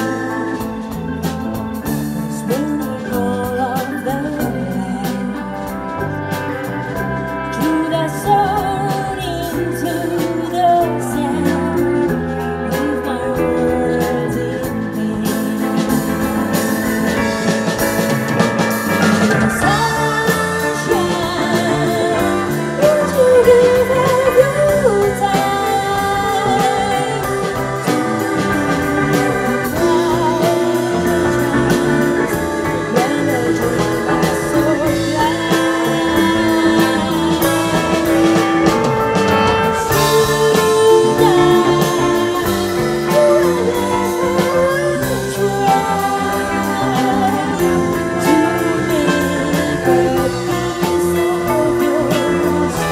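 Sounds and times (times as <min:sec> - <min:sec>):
woman singing with vibrato: 0:00.0 - 0:18.0, 0:19.0 - 0:52.9
drums: 0:00.0 - 0:52.9
electric guitars: 0:00.0 - 0:52.9
keyboard: 0:00.0 - 0:52.9.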